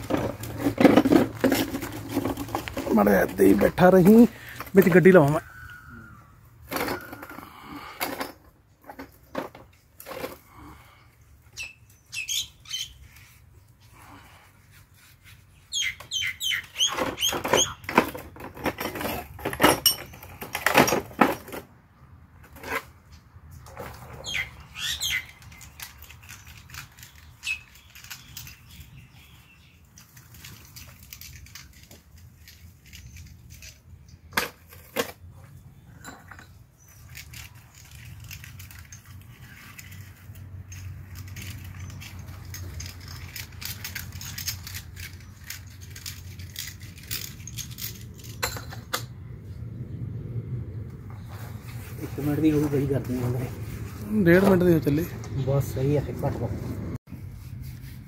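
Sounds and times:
metal parts clinking on steel: 0:29.9 - 0:33.8, 0:36.0 - 0:49.0.

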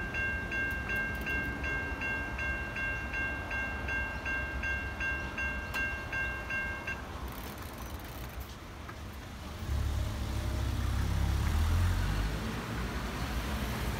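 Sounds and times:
level crossing bell ringing: 0:00.0 - 0:07.1
car engine and tyres rumbling: 0:05.2 - 0:13.9.

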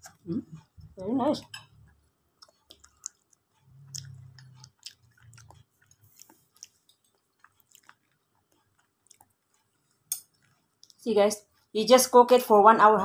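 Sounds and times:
person chewing: 0:00.0 - 0:11.0
mouth clicks: 0:02.4 - 0:06.8
low hum: 0:03.6 - 0:06.3.

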